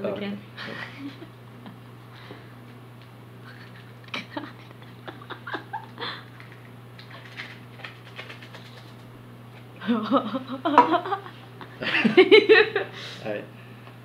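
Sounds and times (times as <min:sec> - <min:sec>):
laughter: 0:00.6 - 0:01.8, 0:03.4 - 0:06.2, 0:09.8 - 0:12.9.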